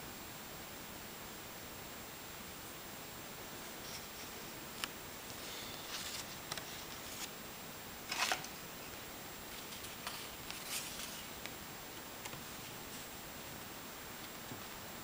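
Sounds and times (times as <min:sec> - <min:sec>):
steady hiss: 0:00.0 - 0:15.0
paper sheets rustling: 0:05.3 - 0:07.4, 0:08.1 - 0:08.6, 0:09.5 - 0:11.4.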